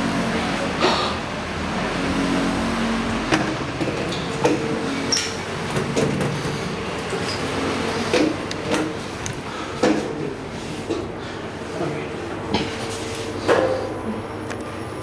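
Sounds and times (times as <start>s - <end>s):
lift doors sliding open: 0.0s - 11.2s
steady background hum: 0.0s - 15.0s.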